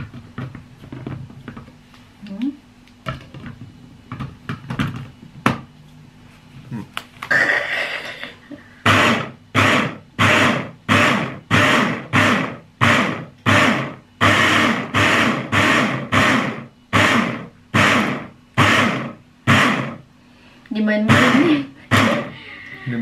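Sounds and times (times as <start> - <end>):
hand blender pulsing: 8.8 - 20.0, 21.1 - 23.0.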